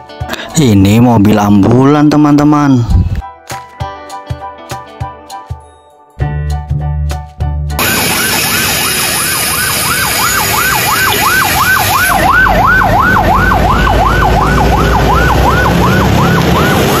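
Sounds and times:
ambulance siren yelping: 7.8 - 17.0
low vehicle rumble: 12.1 - 17.0.

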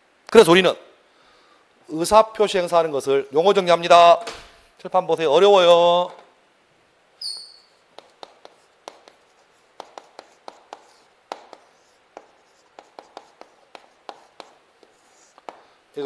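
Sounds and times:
chalk squeak: 7.2 - 15.6
chalk tapping and scraping: 7.2 - 15.8.

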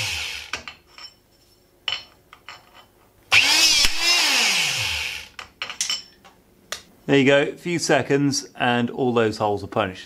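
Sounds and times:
hydraulic punch motor whine: 3.3 - 5.3.

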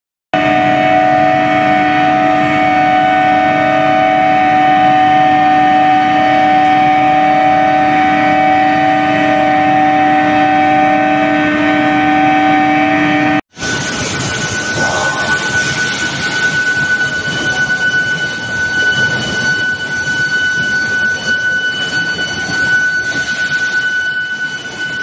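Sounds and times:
induction furnace humming: 0.4 - 25.0
machinery noise: 10.2 - 25.0.

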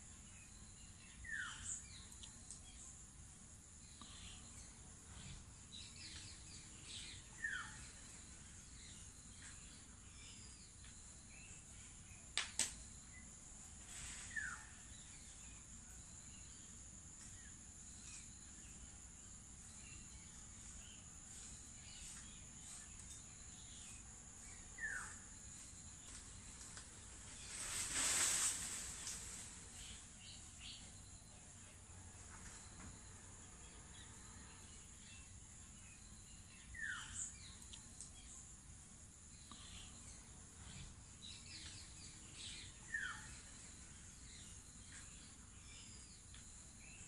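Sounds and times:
bird calls: 4.0 - 12.5, 39.4 - 47.0.

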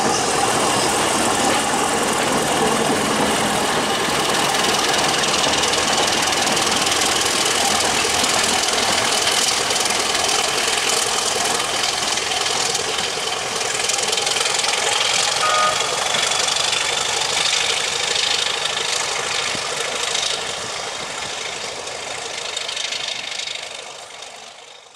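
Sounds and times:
diesel locomotive engine running: 0.0 - 24.9.

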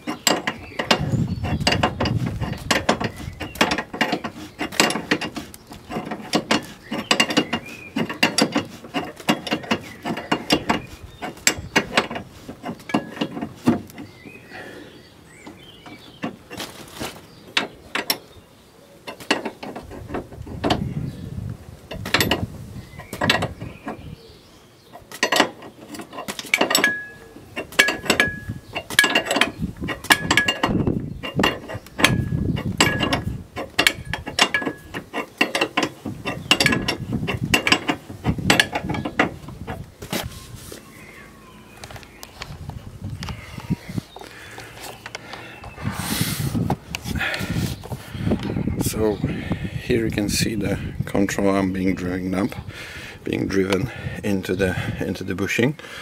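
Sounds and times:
ratcheting wrench clicking: 25.1 - 39.8.

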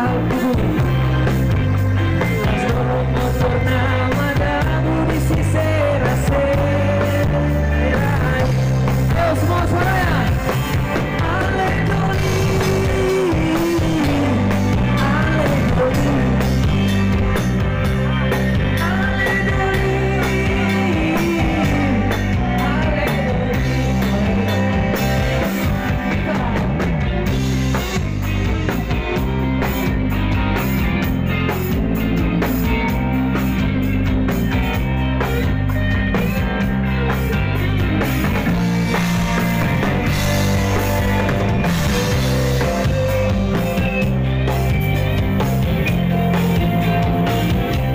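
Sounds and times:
person singing: 0.0 - 17.3, 18.3 - 30.2
live band music: 0.0 - 47.9.

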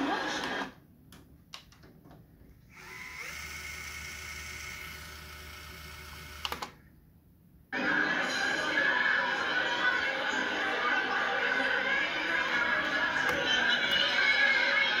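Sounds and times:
recorded tape sound: 0.0 - 3.0, 7.7 - 15.0
reel motor whirring: 2.7 - 6.5.

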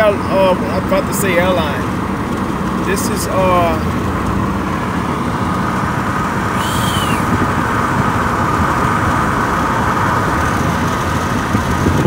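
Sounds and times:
road traffic noise: 0.0 - 12.0
high squeak: 6.6 - 7.3.

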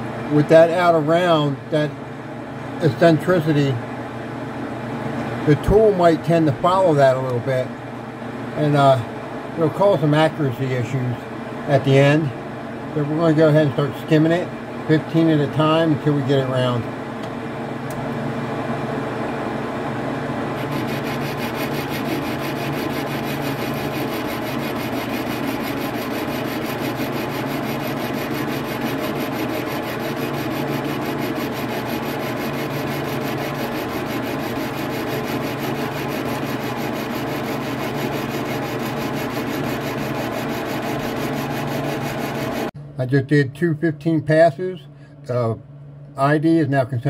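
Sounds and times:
lathe motor hum: 20.4 - 42.7
boring bar cutting steel: 20.6 - 42.7.

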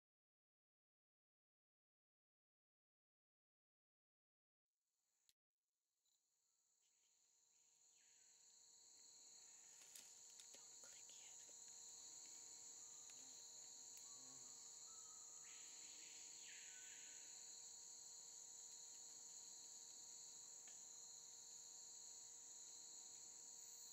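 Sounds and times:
insects chirping: 7.9 - 23.9.

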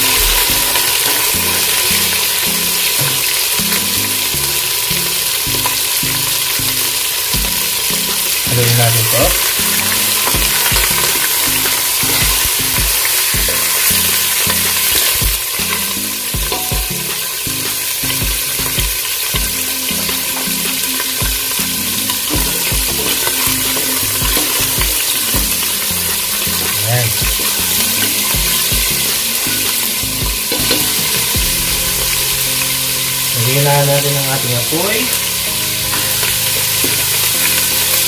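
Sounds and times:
meat sizzling in hot oil: 0.0 - 38.0.

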